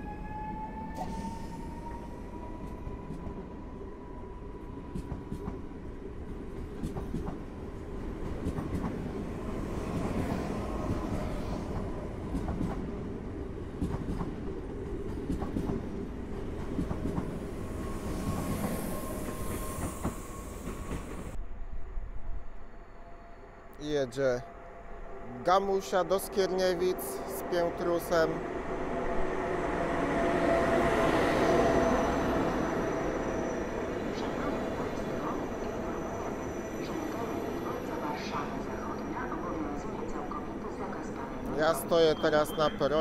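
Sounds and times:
train rumble: 4.8 - 22.0.

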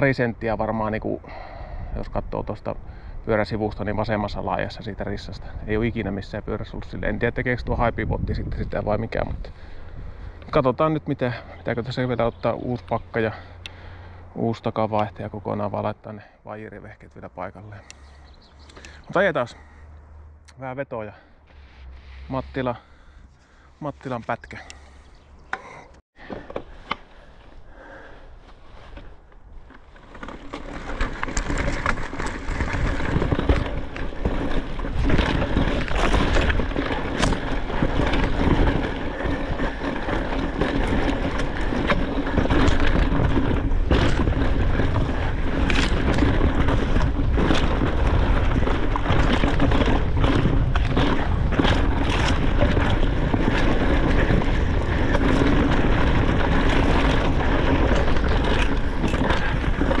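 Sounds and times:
bike rattling over rocks: 0.0 - 19.8, 22.5 - 60.0
bike tyre rumble: 0.0 - 60.0
wind on microphone: 1.1 - 10.5, 30.7 - 60.0.

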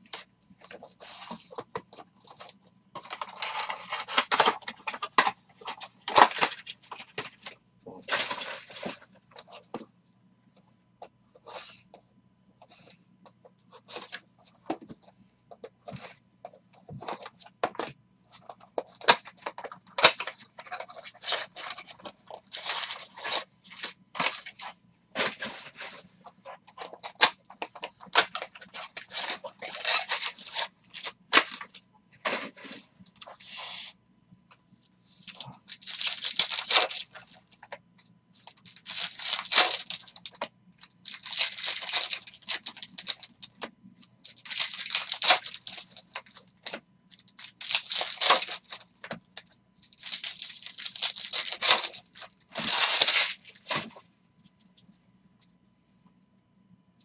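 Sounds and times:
card pack wrappers ripping: 18.8 - 26.0, 26.7 - 31.7, 35.3 - 37.4, 38.4 - 40.4, 41.0 - 43.6, 44.3 - 53.9
plastic shrink-wrap crackling: 35.3 - 37.4, 38.4 - 40.4, 41.0 - 43.6, 44.3 - 53.9.

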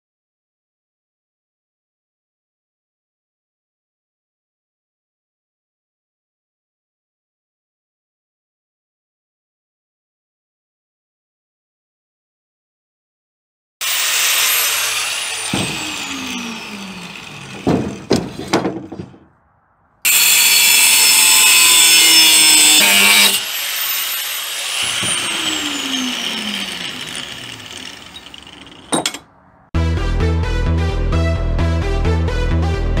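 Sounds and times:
grinder spin-down whine: 13.8 - 18.2, 20.1 - 29.2
angle grinder cutting steel: 13.8 - 18.6, 20.1 - 29.3
metal clanks: 15.4 - 19.3, 27.1 - 29.3.

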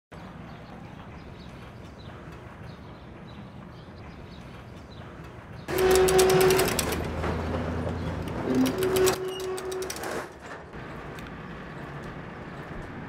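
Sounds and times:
shutter squealing: 5.7 - 7.3, 8.1 - 10.7
metal shutter door rattling: 5.7 - 10.8.

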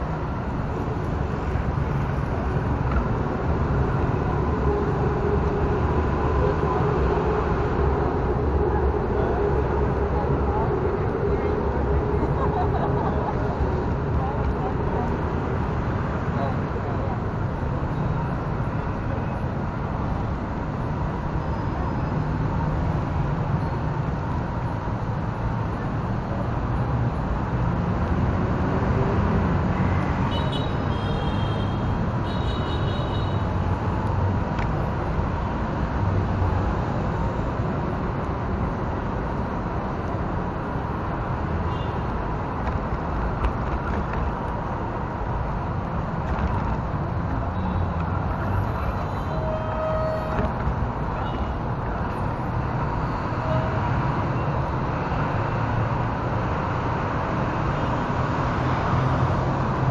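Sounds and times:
city traffic noise: 0.0 - 59.9.

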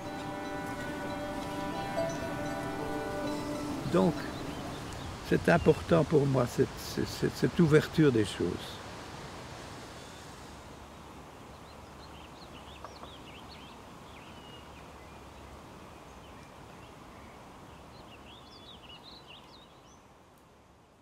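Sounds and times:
small birds chirping: 0.0 - 6.0, 11.5 - 20.1
steady background hiss: 0.0 - 21.0.

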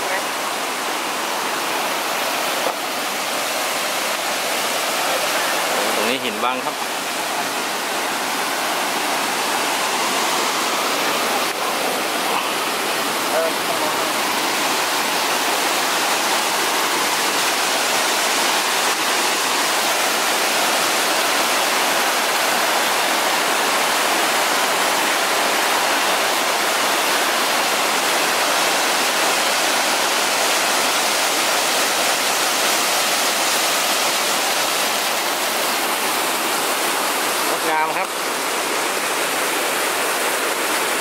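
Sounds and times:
waterfall rushing over rocks: 0.0 - 41.0.

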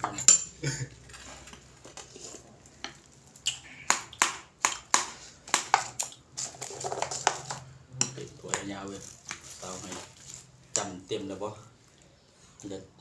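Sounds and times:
metal spoon clinking on ceramic bowl: 0.0 - 0.6.

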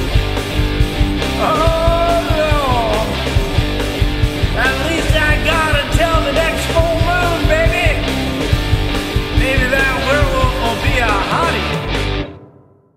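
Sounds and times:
punk rock song: 0.0 - 12.6
person singing: 1.4 - 3.5, 4.5 - 8.1, 9.3 - 12.0.

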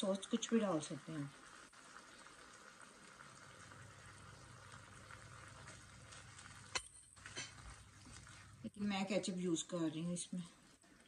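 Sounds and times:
meat sizzling in frying pan: 0.0 - 8.7.

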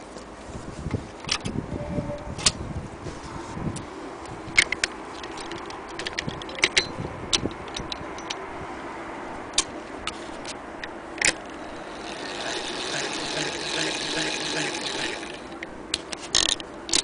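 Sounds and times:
sewing machine hand crank clicking: 11.2 - 15.6.

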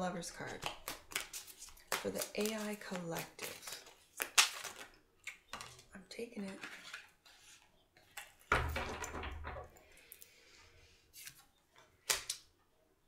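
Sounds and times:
deck of cards rustling: 0.2 - 8.5, 11.1 - 12.5.

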